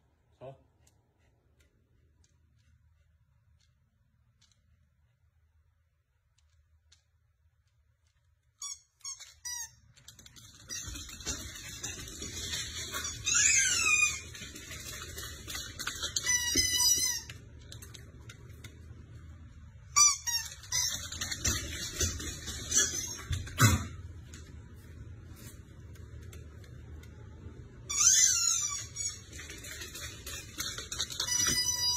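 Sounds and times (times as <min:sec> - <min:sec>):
puppy squealing: 0:13.1 - 0:14.3.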